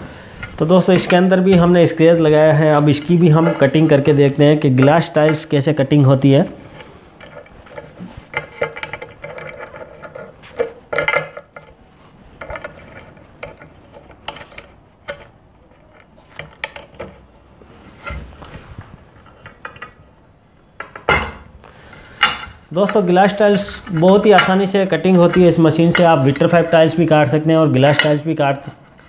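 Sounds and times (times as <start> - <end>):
metal clicks and scrapes: 6.7 - 17.3, 21.9 - 26.9, 27.8 - 29.0.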